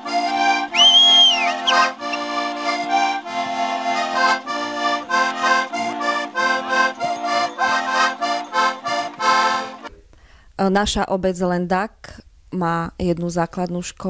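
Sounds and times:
folk dance music over drone: 0:00.0 - 0:09.9.

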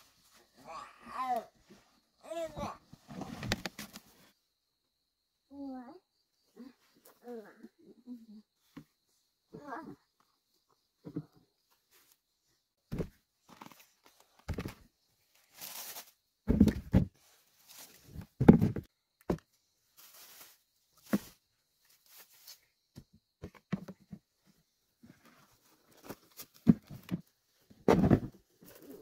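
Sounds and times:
produce thudding into plastic bucket: 0:27.8 - 0:28.4.

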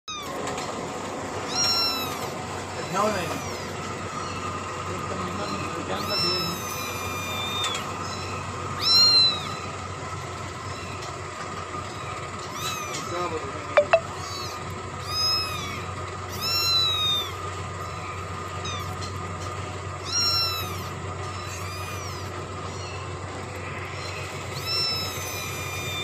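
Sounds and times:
cat mewing: 0:01.5 - 0:03.6, 0:05.5 - 0:09.6.

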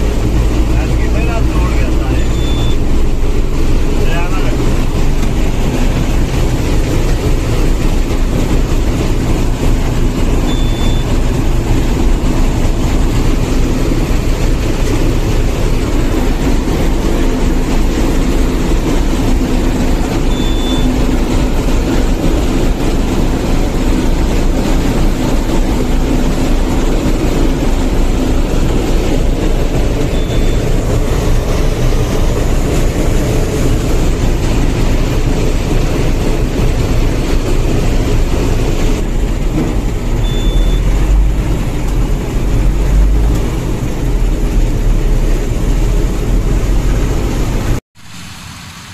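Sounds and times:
harvester machine noise: 0:00.0 - 0:48.9
short high beep: 0:02.2 - 0:02.9, 0:10.4 - 0:11.1, 0:20.3 - 0:21.0, 0:30.1 - 0:30.7, 0:40.2 - 0:40.9.

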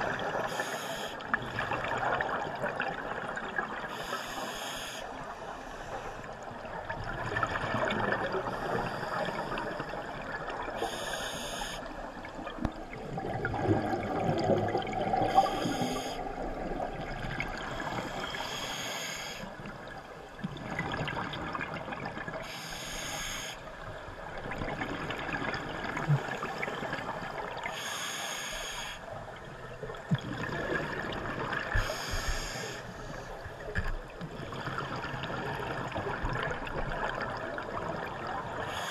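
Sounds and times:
underwater bubbling: 0:00.0 - 0:38.9
diver breathing through regulator: 0:03.9 - 0:06.3, 0:10.8 - 0:12.0, 0:15.2 - 0:16.3, 0:17.6 - 0:19.5, 0:22.4 - 0:23.6, 0:27.7 - 0:29.1, 0:31.8 - 0:33.4, 0:38.6 - 0:38.9.

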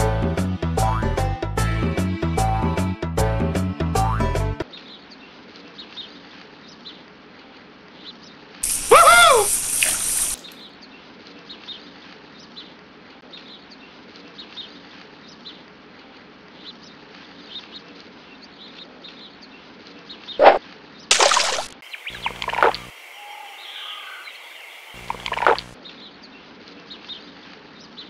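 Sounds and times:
small birds chirping: 0:08.0 - 0:11.8, 0:16.6 - 0:28.0.

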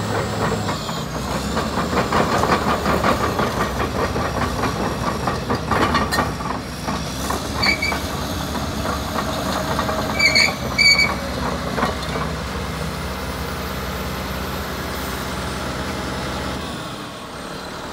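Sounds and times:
bulldozer diesel engine running: 0:00.0 - 0:17.9
short high squeaks: 0:07.6 - 0:08.1, 0:10.1 - 0:11.2.

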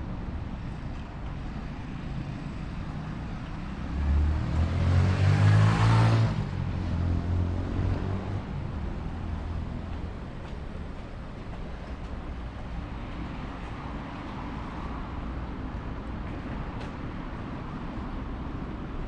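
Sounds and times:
street traffic hum: 0:00.0 - 0:19.0
vehicle driving past: 0:03.6 - 0:09.9.

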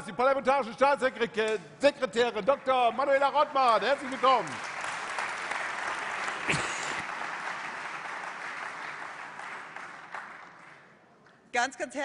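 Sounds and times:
audience applauding: 0:02.4 - 0:10.9.

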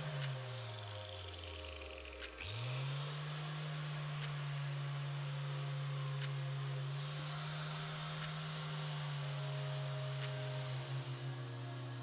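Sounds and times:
angle grinder motor hum: 0:00.0 - 0:12.0.

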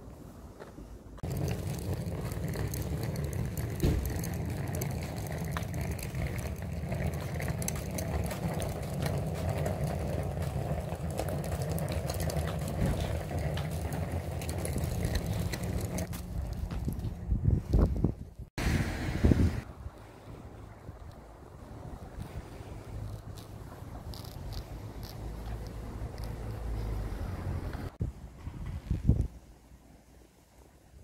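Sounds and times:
faint clicks and crackles: 0:00.6 - 0:17.9, 0:22.1 - 0:27.0
wind rumbling on microphone: 0:01.2 - 0:29.6.

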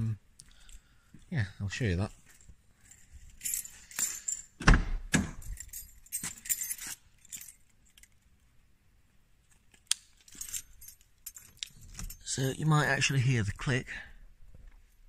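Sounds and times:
keys jangling: 0:02.8 - 0:04.6, 0:05.4 - 0:08.3, 0:09.5 - 0:12.5.

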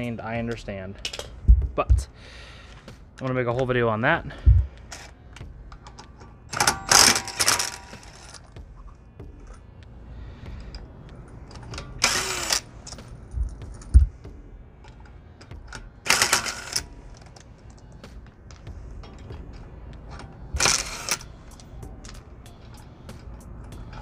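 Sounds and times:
impact wrench hammering: 0:06.5 - 0:08.4, 0:11.7 - 0:14.4, 0:15.4 - 0:17.1, 0:18.7 - 0:24.0.

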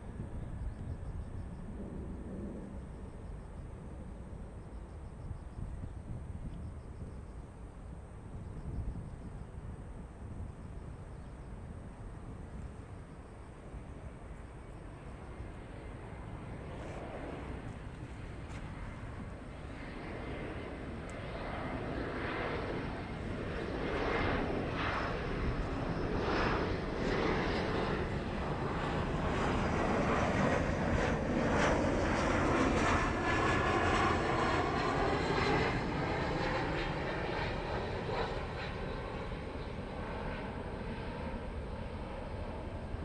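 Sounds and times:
jet airliner roaring: 0:00.0 - 0:43.0.

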